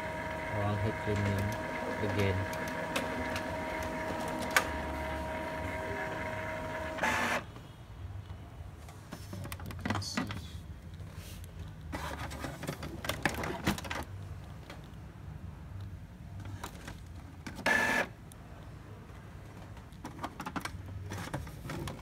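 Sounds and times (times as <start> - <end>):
printer mechanism whirring: 0.0 - 7.5, 17.5 - 18.1.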